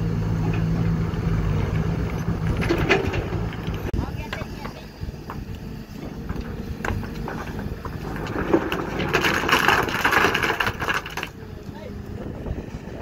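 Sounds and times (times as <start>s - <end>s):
excavator diesel engine running: 0.0s - 13.0s
stones knocking together: 6.2s - 11.4s.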